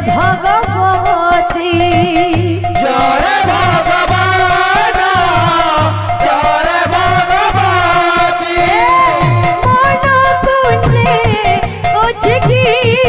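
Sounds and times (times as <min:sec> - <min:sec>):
drum steady beat: 0:00.0 - 0:13.0
jingling percussion: 0:00.0 - 0:13.0
wavering melody: 0:00.2 - 0:11.6
held drone tones: 0:02.8 - 0:11.7.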